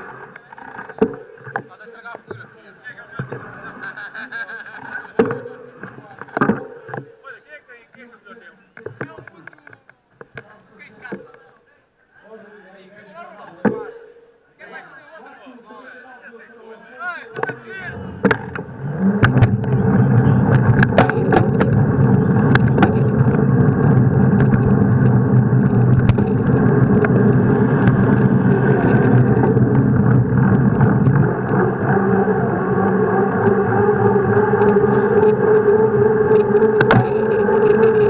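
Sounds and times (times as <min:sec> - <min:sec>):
bicycle tyres and wind hum: 0:17.7 - 0:38.0
sharp clicks and knocks: 0:18.2 - 0:32.1, 0:32.8 - 0:38.0.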